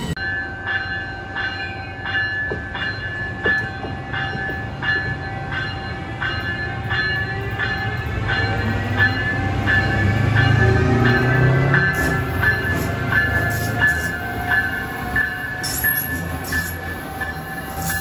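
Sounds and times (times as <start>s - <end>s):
locomotive bell ringing: 0.0s - 18.0s
low train rumble: 0.0s - 18.0s.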